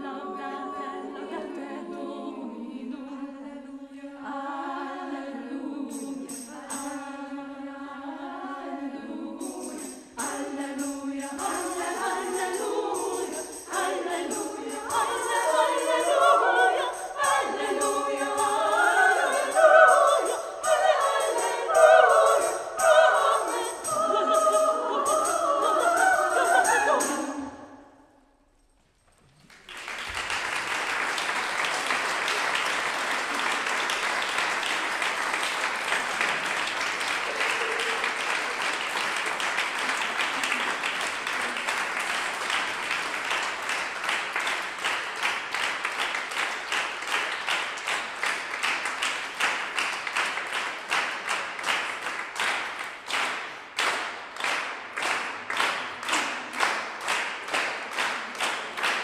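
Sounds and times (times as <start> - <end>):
rhythmic clapping in unison: 5.8 - 7.2, 9.2 - 27.5, 29.5 - 59.0
audience applause: 29.3 - 59.0.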